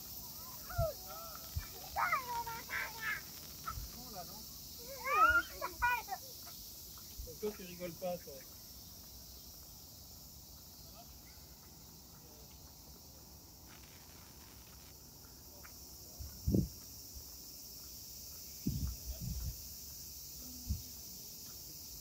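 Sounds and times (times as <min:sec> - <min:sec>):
cicadas singing: 0:00.0 - 0:22.0.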